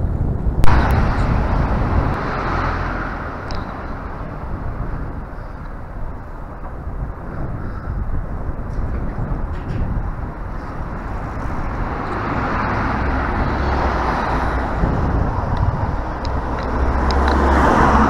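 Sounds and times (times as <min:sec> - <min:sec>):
low steady rumble: 0:00.0 - 0:13.6
cars passing: 0:00.0 - 0:18.0.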